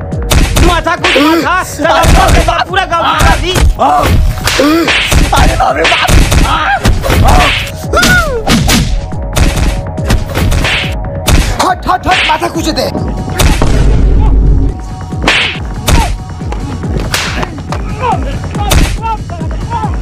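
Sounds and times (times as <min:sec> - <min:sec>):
thuds and smacks of blows: 0:00.2 - 0:01.2, 0:03.2 - 0:12.4, 0:13.4 - 0:14.0, 0:15.2 - 0:16.2, 0:18.7 - 0:19.0
people shouting and crying: 0:00.6 - 0:08.6, 0:15.8 - 0:20.0.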